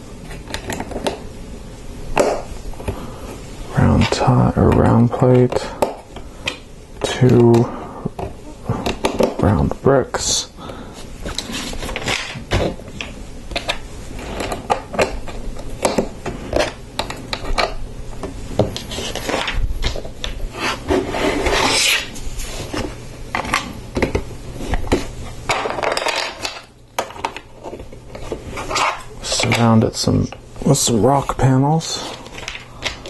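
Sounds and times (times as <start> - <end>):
plastic pieces rattling: 25.5 - 27.4.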